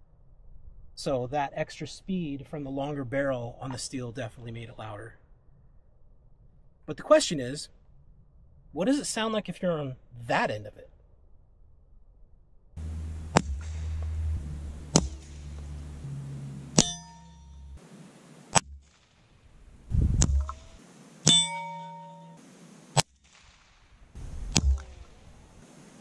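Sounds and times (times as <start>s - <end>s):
bullets striking steel target: 13.1s - 17.8s, 21.3s - 22.4s.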